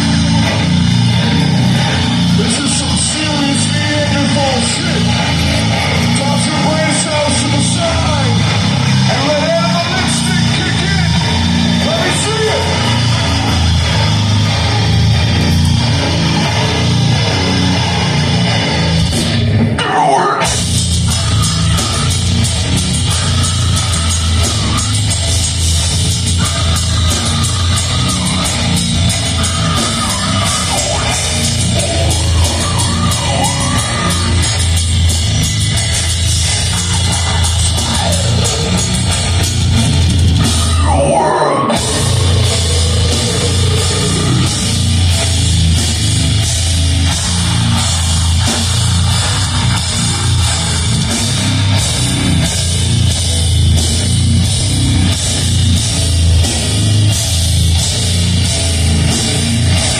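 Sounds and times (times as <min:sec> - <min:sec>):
live heavy metal band: 0:00.0 - 0:59.9
vocalist singing: 0:26.4 - 0:34.8, 0:40.5 - 0:45.0.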